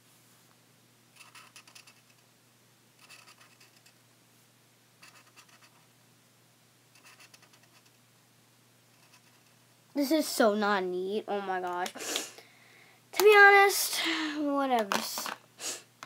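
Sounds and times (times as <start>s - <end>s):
marker scribbling on paper: 7.0s - 7.9s, 9.0s - 9.6s.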